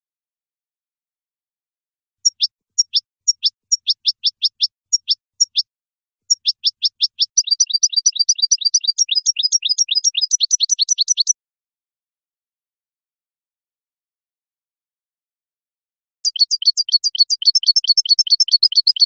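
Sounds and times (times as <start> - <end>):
goldfinch singing: 2.2 - 5.7, 6.3 - 11.4, 16.2 - 19.0.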